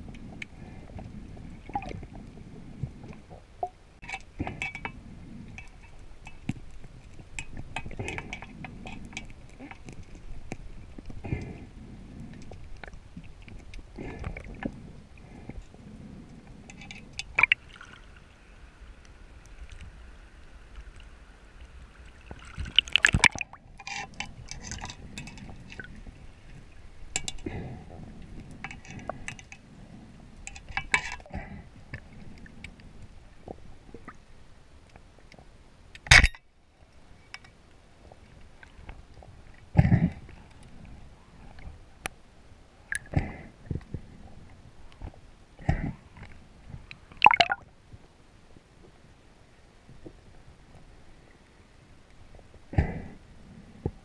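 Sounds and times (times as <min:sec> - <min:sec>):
clicks and crackle: 0:00.0 - 0:11.6, 0:22.3 - 0:27.6, 0:30.4 - 0:37.6
underwater water rush: 0:17.1 - 0:27.5, 0:47.1 - 0:47.6.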